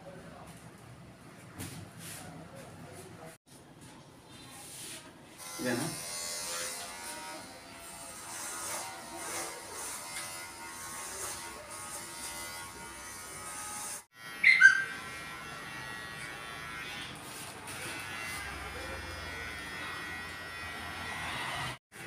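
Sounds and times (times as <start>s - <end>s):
electric hair clipper buzzing: 5.4s - 21.8s.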